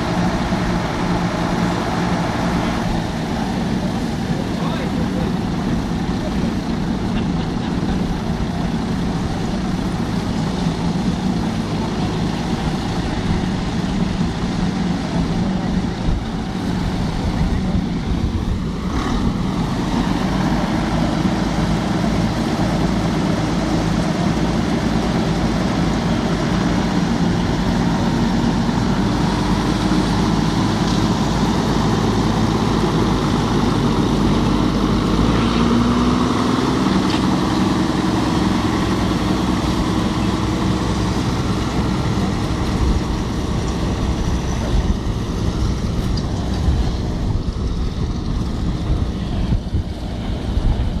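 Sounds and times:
tractor diesel engine under load: 0.0 - 51.0.

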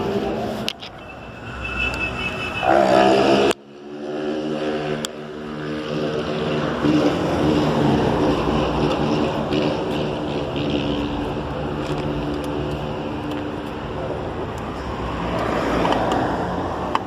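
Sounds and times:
road and wind noise: 0.0 - 17.0
engine speeding up: 1.5 - 13.6.

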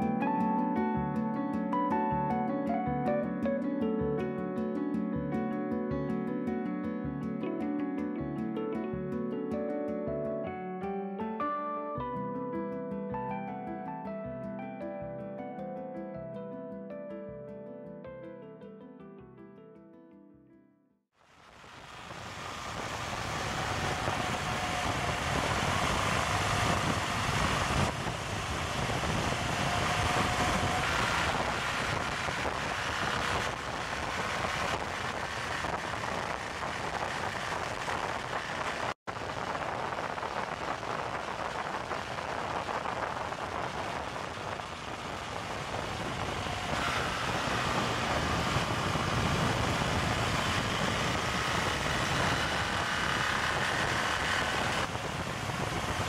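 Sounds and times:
motorcycle engine: 21.4 - 56.0
wind rushing over microphone: 21.5 - 56.0.

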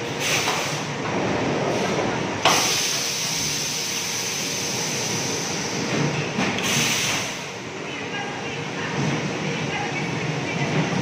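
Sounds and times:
welding machine hiss: 2.4 - 5.8, 6.6 - 7.5.

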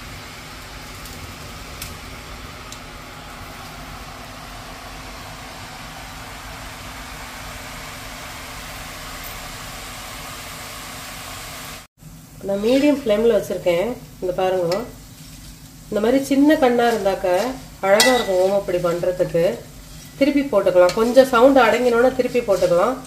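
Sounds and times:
dough deep-frying in hot oil: 0.0 - 23.0.

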